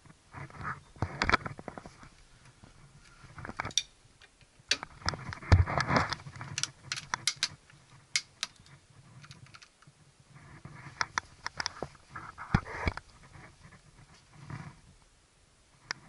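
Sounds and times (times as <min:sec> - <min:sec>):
clicks and knocks of lever: 0:06.5 - 0:07.6
rustling scrape: 0:10.3 - 0:14.9.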